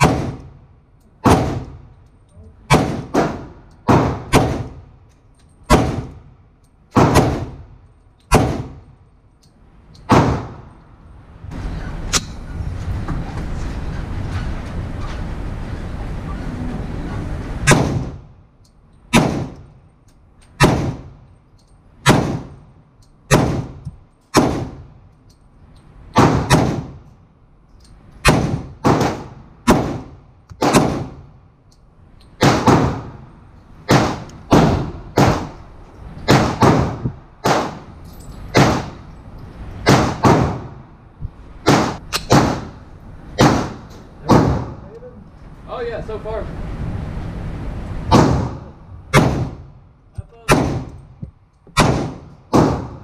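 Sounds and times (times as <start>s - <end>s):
pistol shots echoing indoors: 0.0s - 0.6s, 2.7s - 4.8s, 5.6s - 6.3s, 6.9s - 8.9s, 10.0s - 10.8s, 22.0s - 22.6s, 23.3s - 24.9s, 26.1s - 27.0s, 28.2s - 31.2s, 32.4s - 33.2s, 38.5s - 39.0s, 39.8s - 40.8s, 41.6s - 42.8s, 43.4s - 44.8s, 51.8s - 53.0s.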